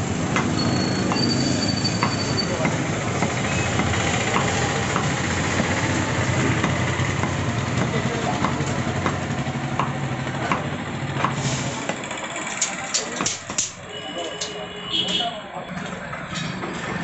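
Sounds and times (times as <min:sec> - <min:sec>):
cleaver chopping meat on wood: 0:02.0 - 0:12.0.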